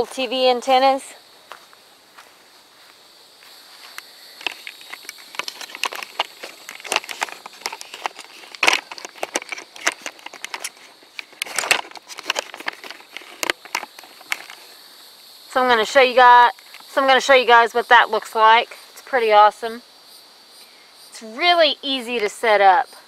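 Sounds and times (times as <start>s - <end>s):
tent fabric rustling: 3.7s - 14.6s
tent poles clicking and clacking: 3.9s - 14.7s, 16.4s - 17.1s.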